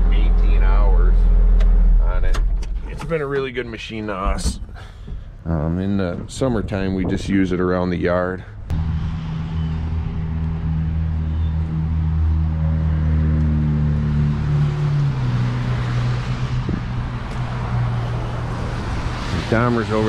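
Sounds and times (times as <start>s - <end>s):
diesel engine running: 8.7s - 20.0s.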